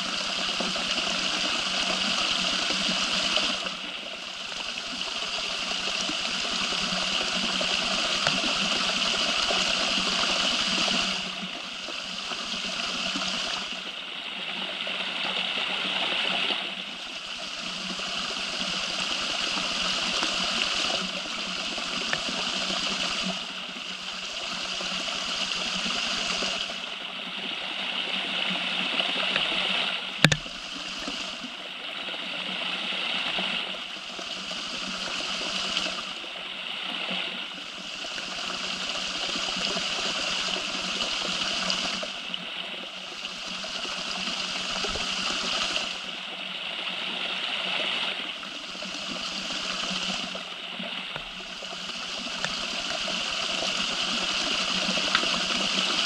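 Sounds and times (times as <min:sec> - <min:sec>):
sharp click: 0:30.2 - 0:30.5.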